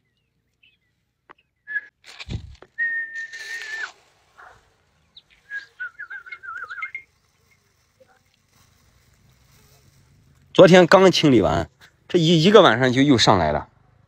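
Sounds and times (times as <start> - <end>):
whistled notes: 1.6 - 2.0, 2.7 - 4.0, 5.2 - 7.2.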